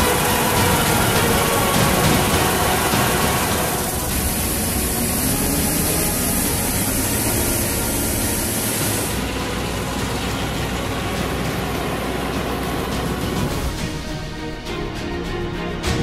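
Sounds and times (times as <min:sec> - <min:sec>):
broad high hiss: 0:00.0 - 0:14.5
combine harvester running: 0:00.0 - 0:16.0.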